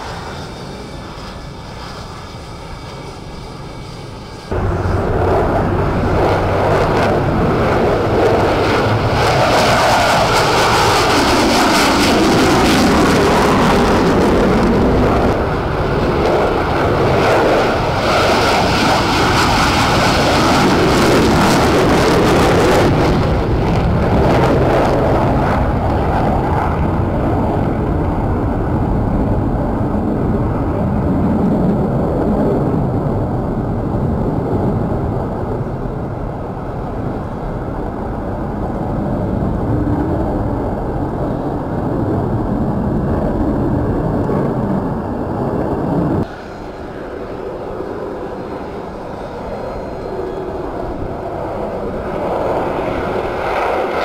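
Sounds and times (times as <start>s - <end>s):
jet engine noise: 0.0s - 54.0s.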